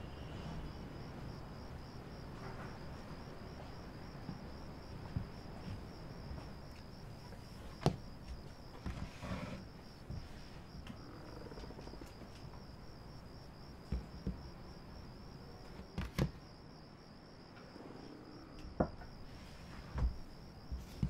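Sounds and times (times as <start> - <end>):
cricket trilling: 0.0 - 21.0
knocks and thumps: 4.2 - 6.8, 7.4 - 12.6, 13.8 - 14.6, 19.9 - 21.0.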